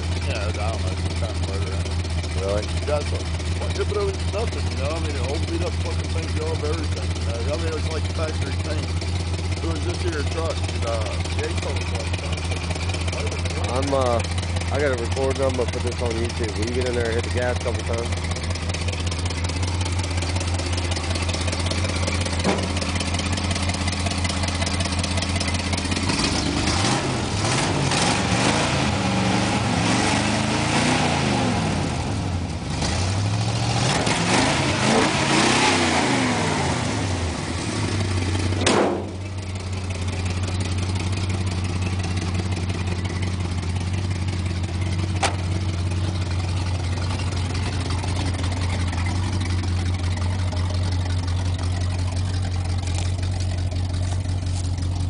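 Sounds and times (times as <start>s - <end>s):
truck engine idling and revving: 0.0s - 55.0s
sharp crack: 22.3s - 23.0s, 38.6s - 39.4s, 45.1s - 45.6s.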